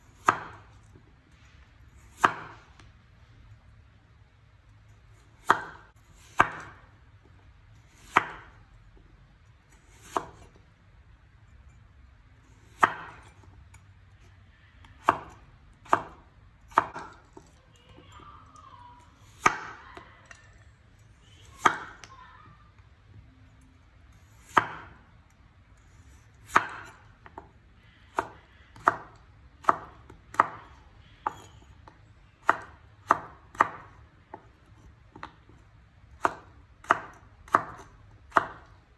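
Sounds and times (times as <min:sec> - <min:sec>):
cleaver chopping potato on board: 0:00.2 - 0:00.7, 0:02.1 - 0:02.6, 0:05.2 - 0:06.8, 0:07.9 - 0:08.6, 0:09.7 - 0:10.5, 0:12.6 - 0:13.4, 0:14.9 - 0:17.2, 0:19.2 - 0:19.8, 0:21.6 - 0:22.1, 0:24.2 - 0:25.0, 0:26.4 - 0:27.5, 0:28.1 - 0:31.6, 0:32.4 - 0:38.8.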